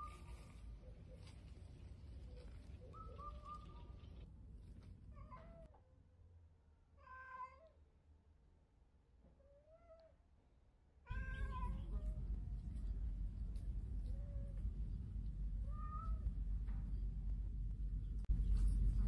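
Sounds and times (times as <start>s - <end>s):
cat meowing: 7.0s - 7.8s, 11.1s - 12.2s
steady low rumble: 11.1s - 19.0s.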